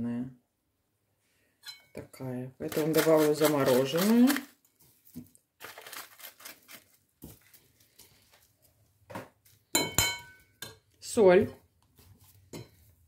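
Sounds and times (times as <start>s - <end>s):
spoon clinking on bowl: 9.8s - 10.8s
spoon stirring in a bowl: 11.8s - 13.0s.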